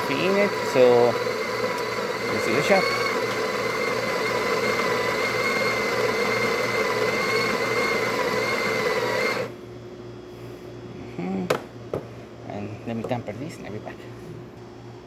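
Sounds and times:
espresso machine humming: 0.0 - 9.6.

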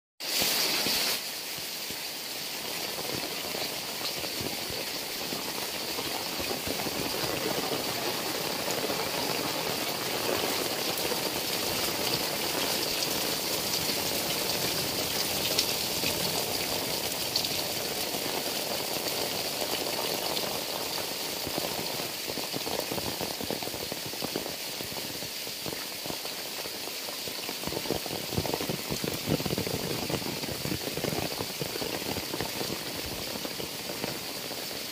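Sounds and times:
heavy rain falling: 0.2 - 34.9
water streaming off roof: 0.2 - 34.9
sharp water drips: 8.6 - 34.8.

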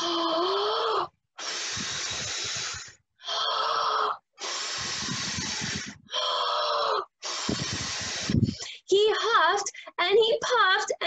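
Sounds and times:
person huffing and puffing: 1.4 - 3.0, 4.4 - 6.1, 7.2 - 8.9.

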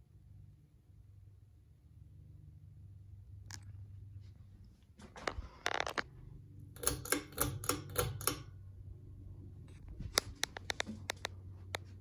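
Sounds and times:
ceiling fan motor hum: 0.0 - 12.0
sharp clicks: 6.8 - 8.5, 10.1 - 11.9.

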